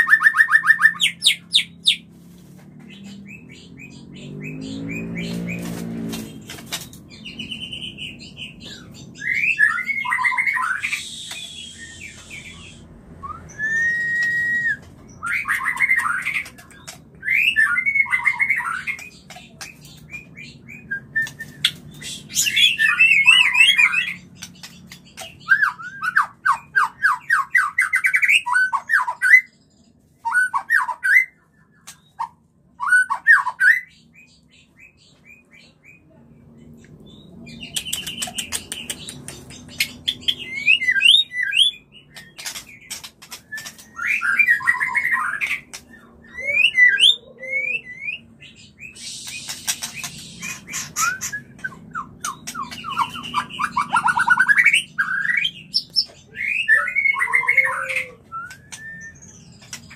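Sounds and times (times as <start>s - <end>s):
bird trilling calls: 37.8s - 59.9s.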